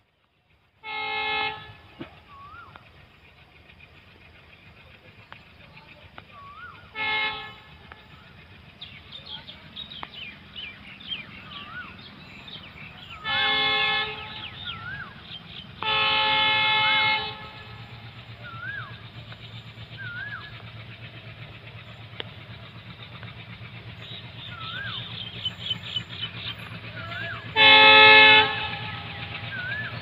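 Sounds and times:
locomotive engine rumble: 0.0s - 30.0s
locomotive horn blasts: 0.8s - 1.9s, 6.8s - 8.0s, 13.0s - 15.1s, 15.8s - 18.8s, 27.2s - 30.0s
bird whistled call: 2.2s - 2.9s, 6.3s - 6.9s, 8.8s - 15.8s, 18.3s - 20.9s, 24.0s - 27.5s, 29.0s - 30.0s.

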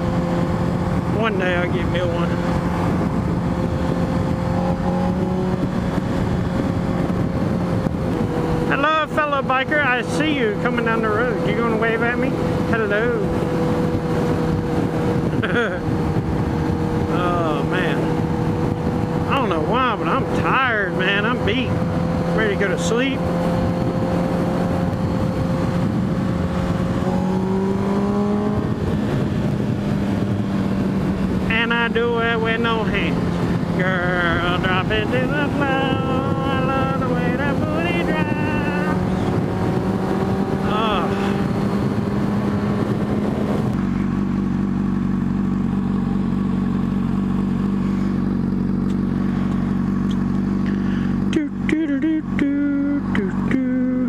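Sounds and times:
motorcycle engine running: 0.0s - 54.0s
wind and road noise: 0.0s - 54.0s
motorcycle engine idling: 43.7s - 54.0s.

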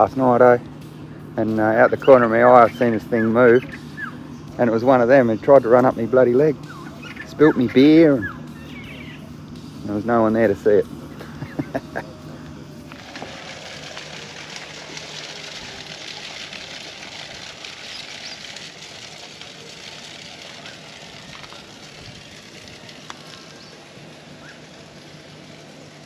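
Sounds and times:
low steady hum: 0.0s - 26.0s
steady hiss: 0.0s - 26.0s.

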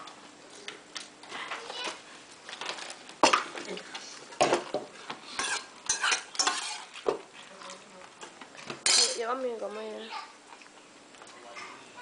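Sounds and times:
cutlery clinking against plates: 5.4s - 6.9s, 8.8s - 9.2s.

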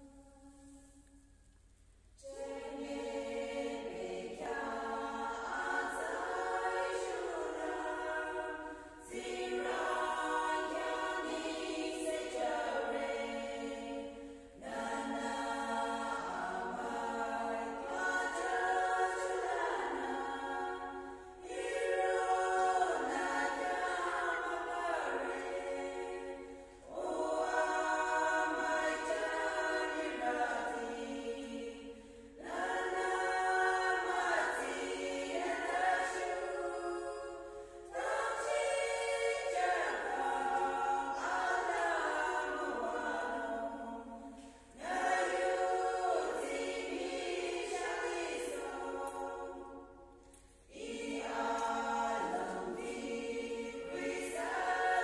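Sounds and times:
women's choir singing a hymn: 2.2s - 55.0s.

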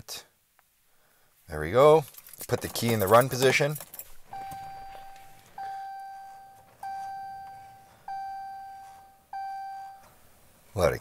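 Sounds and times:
dashboard warning chime dinging: 4.3s - 10.4s.

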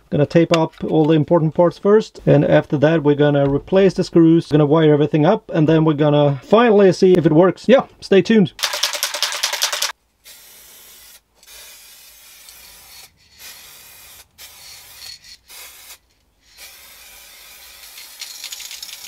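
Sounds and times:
spray can ball rattling: 8.6s - 19.0s
spray can hissing: 8.6s - 19.0s.

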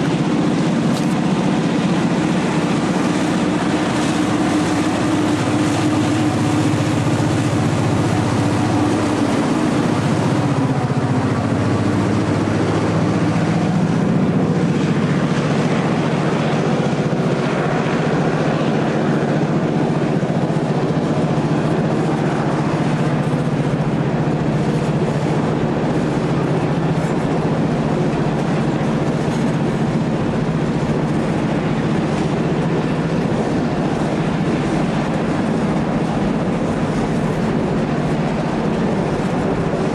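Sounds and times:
diesel locomotive engine drone: 0.0s - 39.9s
freight cars rolling on steel wheels: 0.0s - 39.9s.

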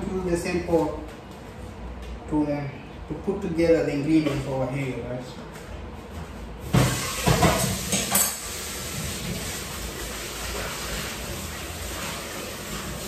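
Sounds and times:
pots and utensils clattering: 6.7s - 13.0s.

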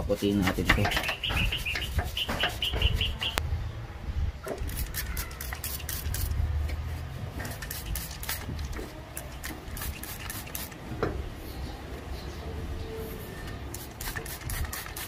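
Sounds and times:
spray bottle hissing: 4.7s - 6.4s, 7.4s - 8.5s, 9.2s - 10.8s, 13.7s - 15.0s.

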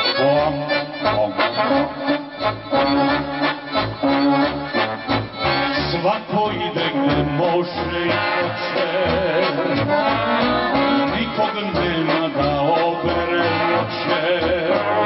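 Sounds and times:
accordion melody: 0.0s - 15.0s
folk band playing: 0.0s - 15.0s
steady drum beat: 7.8s - 15.0s.

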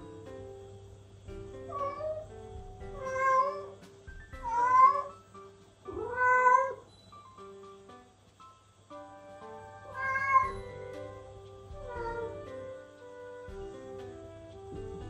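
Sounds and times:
background music: 0.0s - 15.0s
cat meowing: 1.7s - 2.2s, 2.9s - 3.8s, 4.4s - 5.1s, 5.9s - 6.9s, 9.8s - 11.0s, 11.7s - 12.5s.

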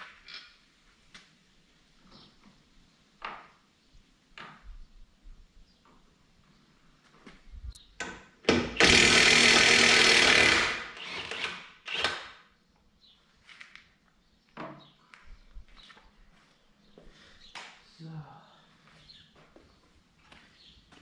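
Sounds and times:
power tool on wheel nuts: 8.4s - 12.5s.

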